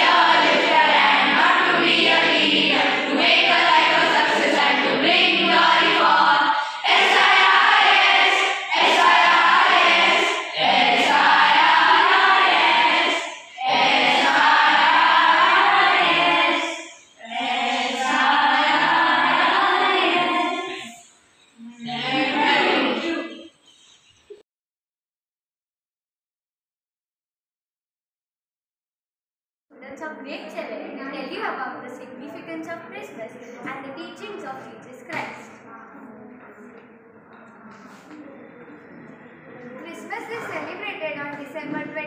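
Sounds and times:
children singing in unison: 0.0 - 23.6
children breathing: 6.5 - 6.9.

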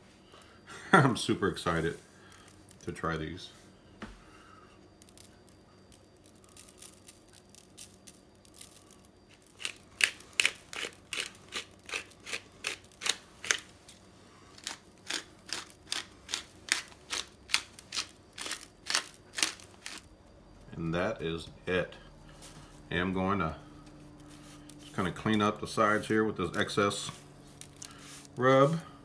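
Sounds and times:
pepper mill grinding: 5.0 - 20.1, 24.1 - 28.9.

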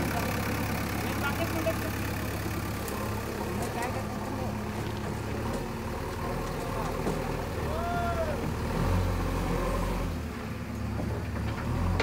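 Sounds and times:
diesel engine running under load: 0.0 - 12.0.

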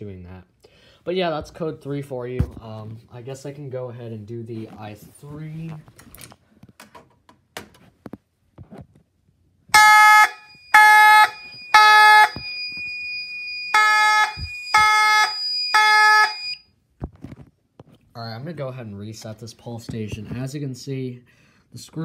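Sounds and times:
fire alarm horn blasts: 9.7 - 16.7.

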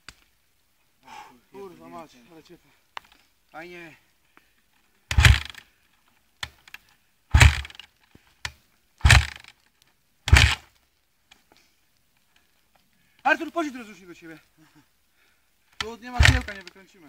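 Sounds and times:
dirt bike kick-start thumps: 5.1 - 5.6, 7.3 - 7.8, 9.0 - 9.5, 10.3 - 10.7, 15.8 - 16.7.

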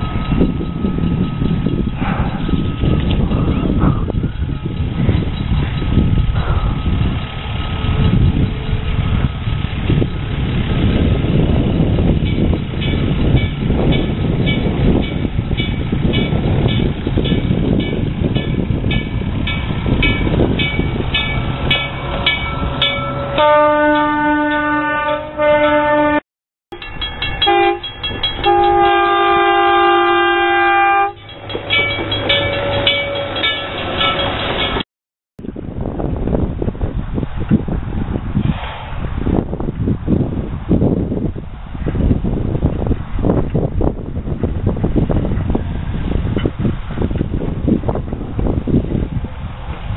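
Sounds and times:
wind rumble on microphone: 0.0 - 26.2, 35.4 - 49.9
railway motor car running: 0.0 - 34.8, 35.4 - 49.9
rail car horn blasts: 22.2 - 33.7
bell ringing: 26.7 - 29.1, 31.2 - 34.8.

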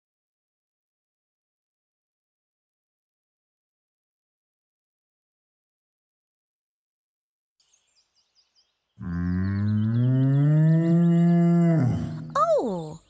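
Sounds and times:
cartoon cow mooing: 9.0 - 12.9.

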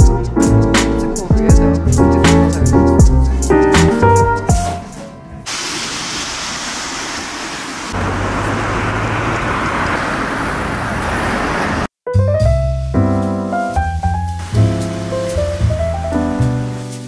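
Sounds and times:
background piano music: 0.0 - 5.5, 12.1 - 17.0
hiss of cars on road: 5.4 - 11.9, 14.3 - 17.0.

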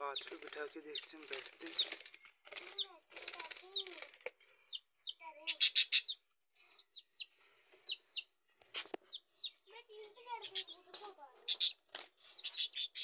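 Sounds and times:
budgerigars chirping: 0.0 - 2.9, 4.5 - 9.6, 10.4 - 13.0
wing flapping: 0.0 - 4.4.

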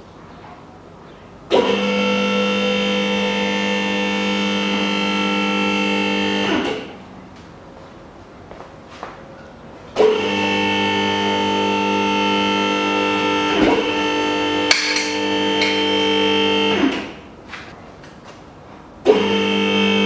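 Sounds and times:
car lift motor buzzing: 1.5 - 7.0, 9.9 - 17.3, 19.0 - 20.0
lift mechanism knocks: 14.7 - 16.0.

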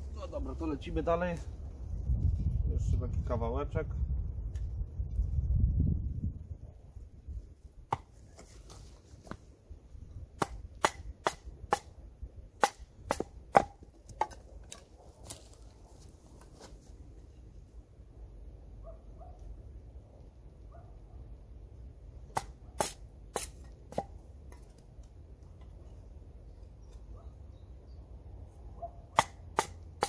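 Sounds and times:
stick striking knife spine: 22.3 - 24.2.

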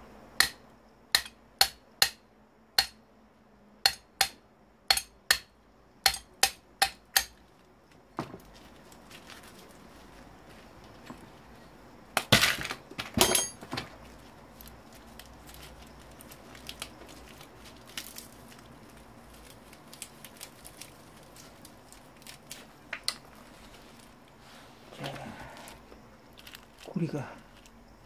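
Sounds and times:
plastic cracking and snapping: 14.6 - 23.4.

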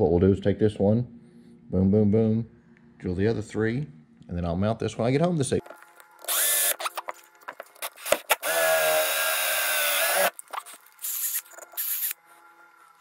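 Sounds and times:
cordless drill boring through plastic: 6.2 - 7.0, 7.8 - 12.2.

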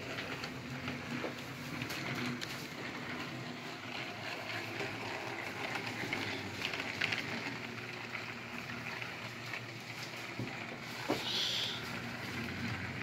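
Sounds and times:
toy train humming and rattling: 0.0 - 13.0.

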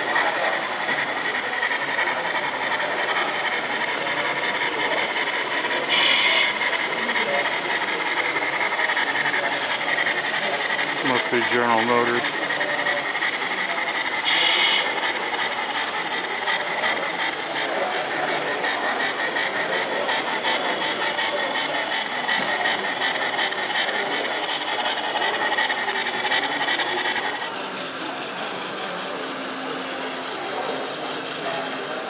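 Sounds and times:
model train motor whir: 0.0 - 32.0
murmur of voices: 0.0 - 32.0.

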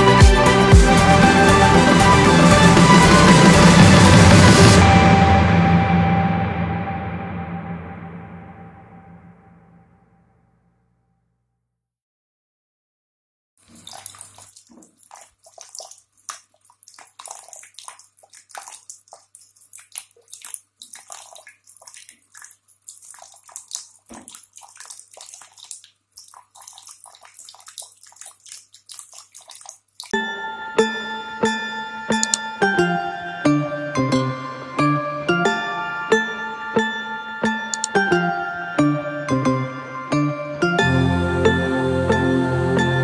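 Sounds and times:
music: 0.0 - 9.3, 30.2 - 43.0
fountain water splashing and trickling: 13.6 - 30.2.

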